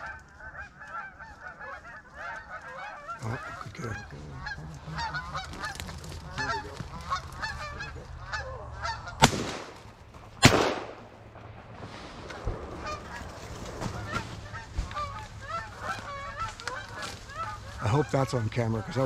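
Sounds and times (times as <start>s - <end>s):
geese honking: 0.0s - 10.7s, 12.3s - 19.0s
shotgun shots: 9.2s - 11.8s.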